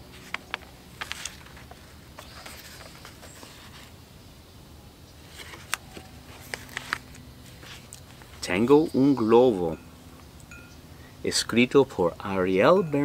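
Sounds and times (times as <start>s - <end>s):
book pages rustling: 0.0s - 4.0s, 5.2s - 8.4s
faint low background hum: 0.0s - 13.0s.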